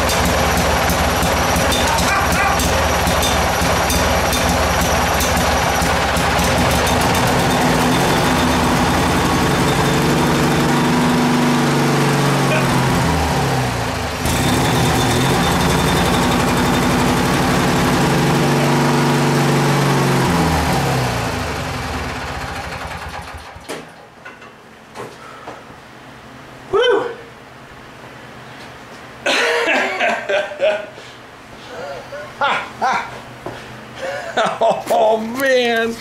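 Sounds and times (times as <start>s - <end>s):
lawn tractor engine running: 0.0s - 24.0s.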